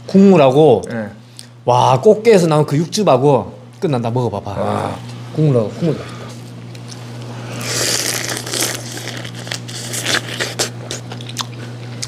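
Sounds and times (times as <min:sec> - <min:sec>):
slurping: 0:07.3 - 0:11.6
crab shell cracking when chewed: 0:07.7 - 0:12.0.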